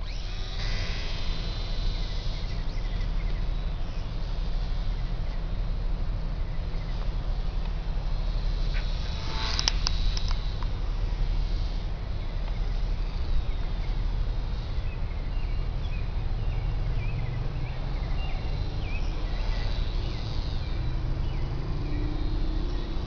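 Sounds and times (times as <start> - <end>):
faint steady hum: 0.0 - 23.0
wind rumble on microphone: 0.0 - 23.0.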